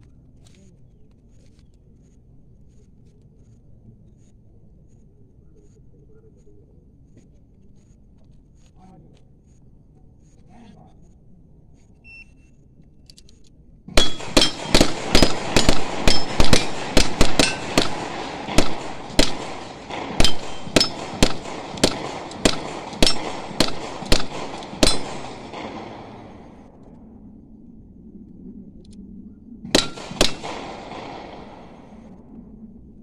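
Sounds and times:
rifle shots with echo: 13.9s - 26.8s, 29.7s - 32.1s.

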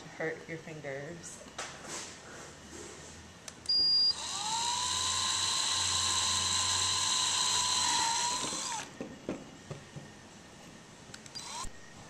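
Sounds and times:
electric drill motor whine: 3.7s - 9.0s, 11.3s - 12.0s.

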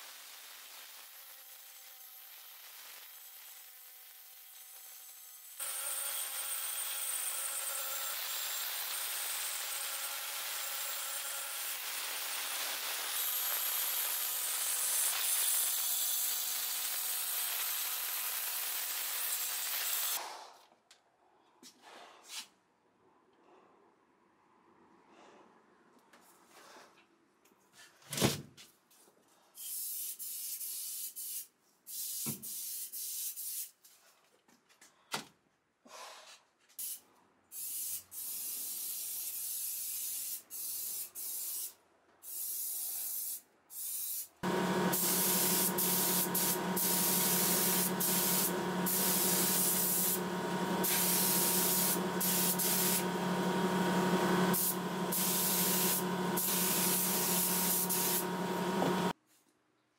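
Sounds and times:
aerosol spray can hissing: 43.1s - 59.1s
paint spray gun hissing: 43.2s - 59.2s
steady hum: 44.4s - 59.1s.

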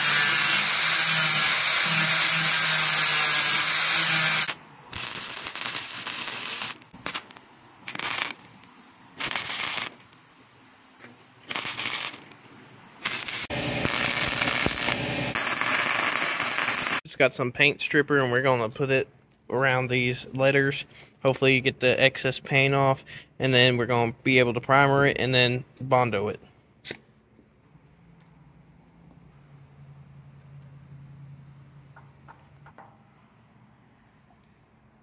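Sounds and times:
welding arc crackling: 0.0s - 17.0s.

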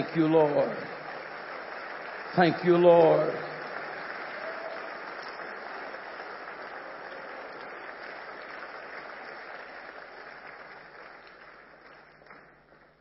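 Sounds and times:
congregation applauding: 0.0s - 13.0s.

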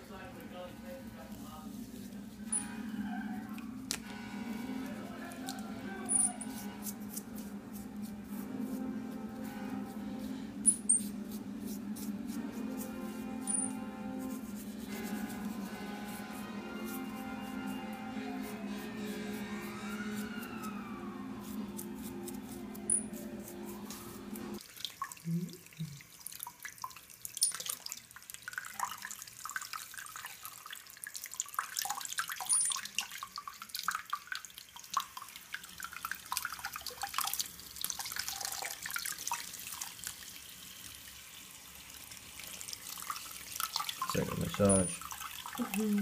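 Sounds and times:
background music: 2.2s - 24.6s.

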